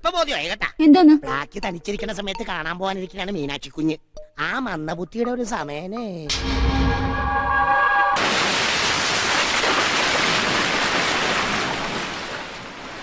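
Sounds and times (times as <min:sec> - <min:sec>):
ocean waves breaking: 0:08.2 - 0:13.0.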